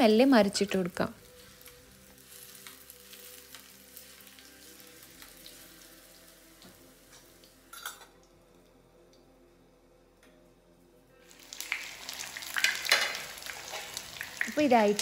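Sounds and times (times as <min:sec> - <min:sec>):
food sizzling in hot oil: 0:00.6 - 0:07.9, 0:11.3 - 0:15.0.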